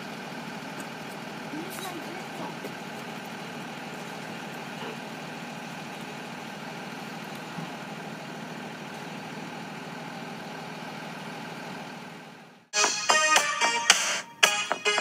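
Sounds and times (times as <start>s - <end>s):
steady mechanical hum: 0.7s - 6.2s.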